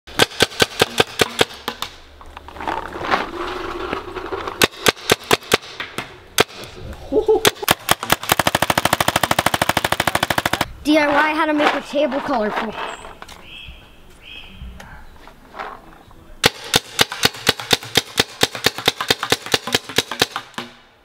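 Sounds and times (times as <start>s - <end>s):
paintball gun firing: 0.1s - 2.0s, 4.6s - 6.8s, 7.4s - 10.7s, 16.4s - 20.9s.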